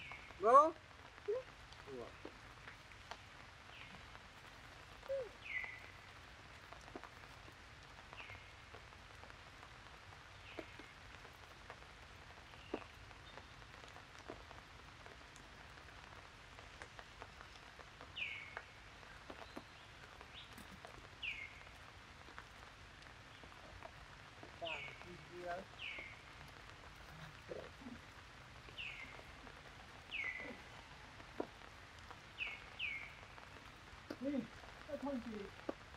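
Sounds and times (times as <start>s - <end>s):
water patter on leaves: 0.0s - 35.9s
light drip clicks: 1.6s - 9.3s, 10.4s - 11.8s, 12.4s - 35.9s.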